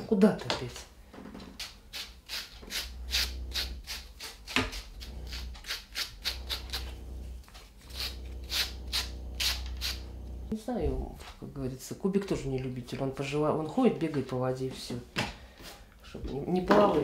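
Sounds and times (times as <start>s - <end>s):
scratchy pulls of dog hair: 1.9s - 10.5s.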